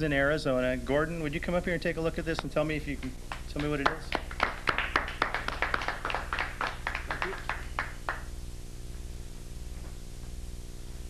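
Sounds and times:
small audience applauding: 3.0s - 8.3s.

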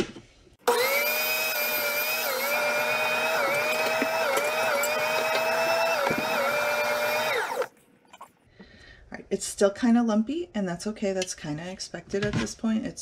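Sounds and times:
electric mixer motor whining: 0.6s - 7.7s.

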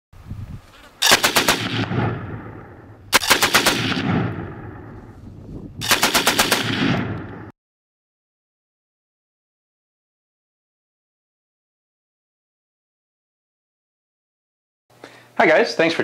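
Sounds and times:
automatic gunfire bursts with echo: 1.0s - 4.9s, 5.8s - 7.5s.

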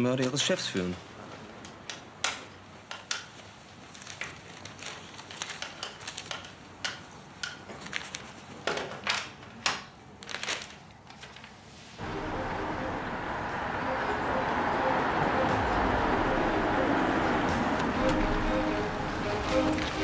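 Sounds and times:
paper rustling: 3.7s - 6.6s, 7.7s - 8.6s, 10.2s - 11.8s.

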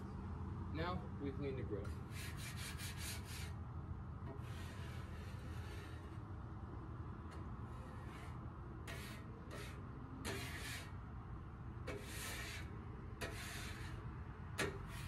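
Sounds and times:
grill brush scrubbing grates: 1.9s - 3.6s, 4.2s - 6.4s, 7.2s - 15.0s.

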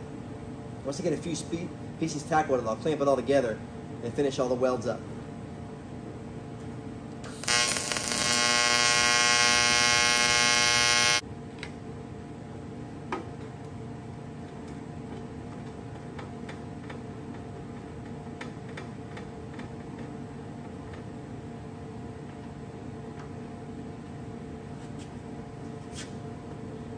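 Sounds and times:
low electrical hum: 0.0s - 26.9s
welding arc buzzing: 7.2s - 11.2s.

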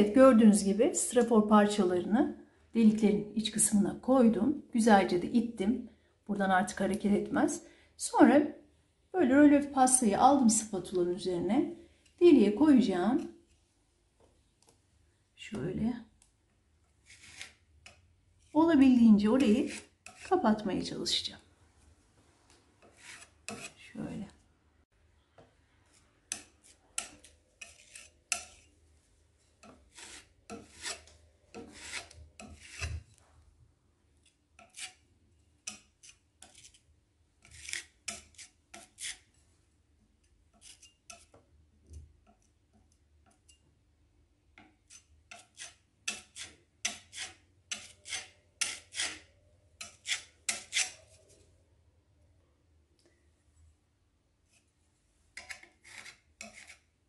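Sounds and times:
putty knife scraping a wall: 17.0s - 18.0s, 19.4s - 20.3s, 22.8s - 23.8s, 26.3s - 28.8s, 29.6s - 33.2s, 34.2s - 39.4s, 40.5s - 41.5s, 44.6s - 51.4s, 55.4s - 57.0s.

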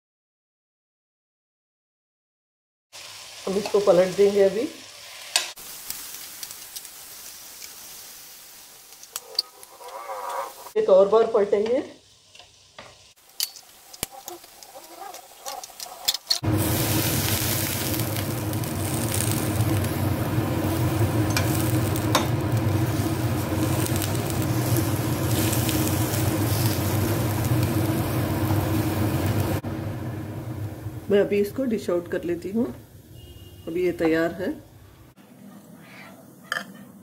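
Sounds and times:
meat sizzling in grill pan: 3.0s - 10.8s, 12.0s - 31.9s
metal tongs clicking and scraping: 13.3s - 16.4s
low hum: 16.4s - 31.7s.

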